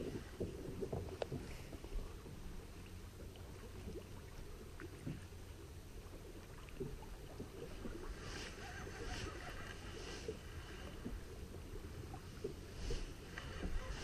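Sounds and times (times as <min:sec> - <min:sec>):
low rumble of water and wind: 0:00.0 - 0:14.0.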